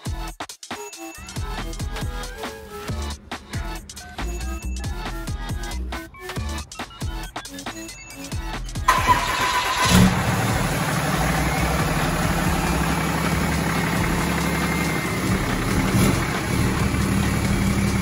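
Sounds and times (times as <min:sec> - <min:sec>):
diesel engine starting and idling: 0:01.2 - 0:18.0
starter motor cranking: 0:08.4 - 0:18.0.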